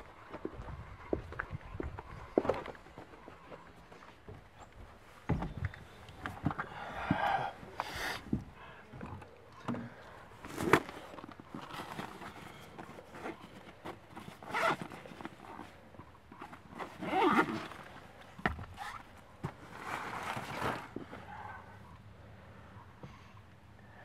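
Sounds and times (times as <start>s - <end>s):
fabric rustling and rummaging: 10.4s - 21.2s
backpack zipper opening: 14.3s - 15.2s, 16.8s - 17.9s, 18.7s - 19.0s.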